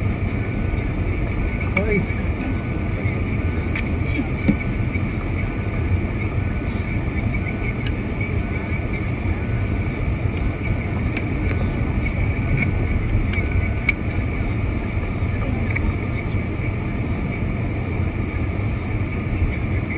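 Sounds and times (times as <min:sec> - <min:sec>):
car driving rumble: 0:00.0 - 0:19.9.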